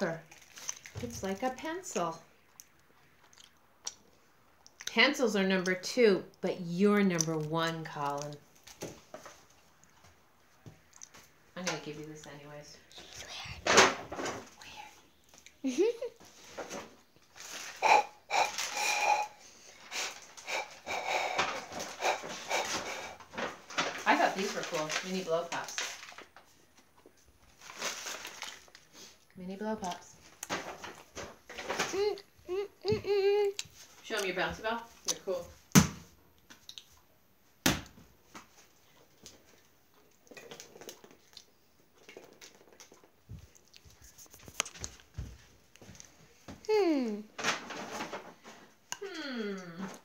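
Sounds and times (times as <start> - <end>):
bouncy ball striking hard floor: 37.6 - 38.0
faint taps and rustles: 43.2 - 46.6.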